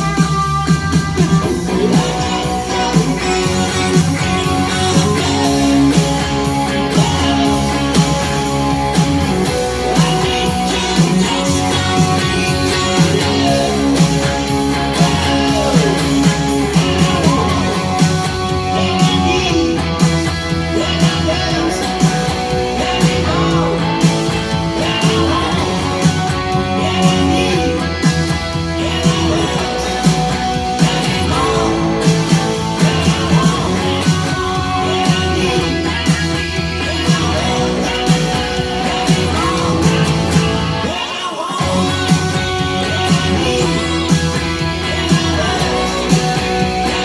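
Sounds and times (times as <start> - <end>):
electric guitar rock playing: 0.0 - 47.0.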